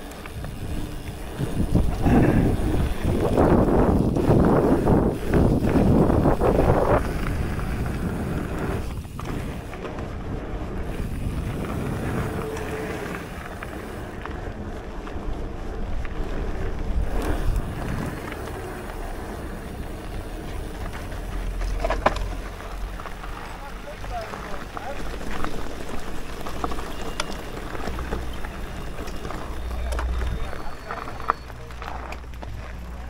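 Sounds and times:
wind noise on microphone: 0:00.0 - 0:23.4
bike knocking on bumps: 0:00.0 - 0:33.0
bike rattling: 0:00.0 - 0:33.0
tyres crunching on gravel: 0:00.0 - 0:33.0.

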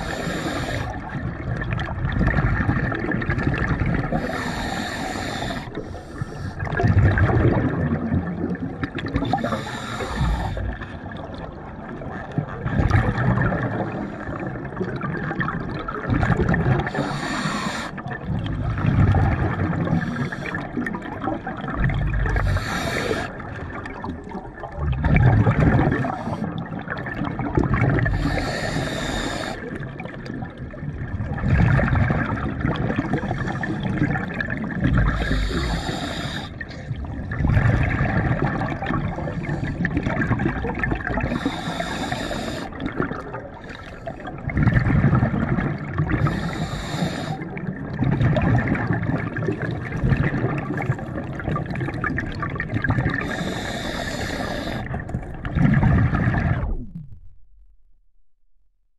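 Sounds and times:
regulator inhale hiss: 0:00.0 - 0:01.0, 0:04.1 - 0:06.7, 0:09.2 - 0:10.8, 0:16.8 - 0:18.0, 0:20.0 - 0:20.8, 0:22.4 - 0:23.4, 0:28.1 - 0:29.7, 0:35.1 - 0:36.6, 0:41.2 - 0:42.8, 0:46.2 - 0:47.5, 0:53.2 - 0:55.0
bubbling exhale: 0:00.0 - 0:11.5, 0:12.8 - 0:30.7, 0:31.3 - 0:57.1.

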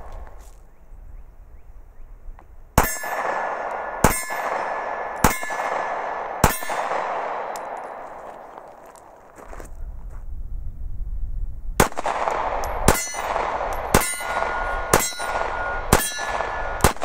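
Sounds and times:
pistol shots with ringing tail: 0:02.8 - 0:08.6, 0:11.8 - 0:17.0.

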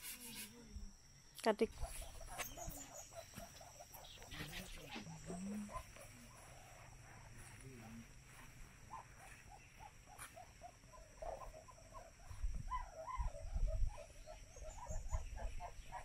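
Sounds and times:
bird chirping: 0:00.2 - 0:16.0.

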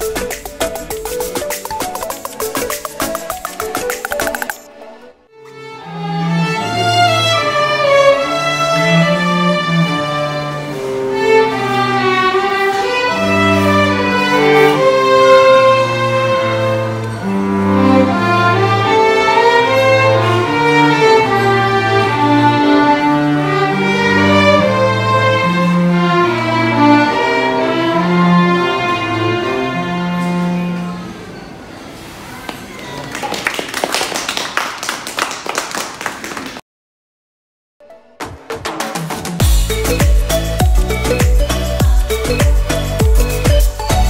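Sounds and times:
violins playing melody: 0:00.0 - 0:31.0
cello bass notes: 0:00.0 - 0:31.2.

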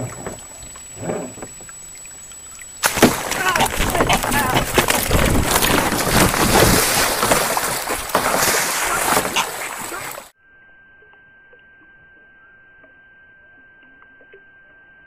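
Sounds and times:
water splashing: 0:00.0 - 0:10.3
faint high whine: 0:00.0 - 0:15.0
goose wings flapping: 0:02.8 - 0:10.3.

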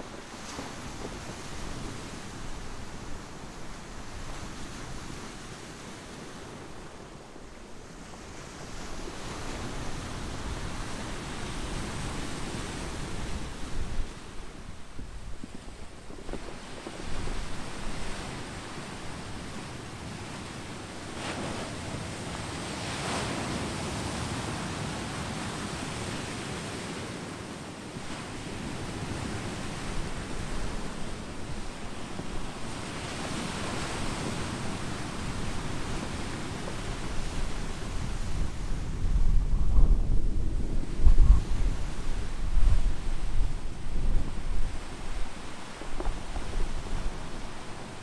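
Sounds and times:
wind buffeting microphone: 0:00.0 - 0:26.3, 0:28.0 - 0:48.0.

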